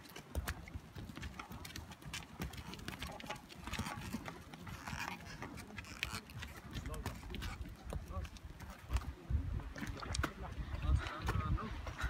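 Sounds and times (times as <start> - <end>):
footsteps on stony trail: 0.0 - 9.3.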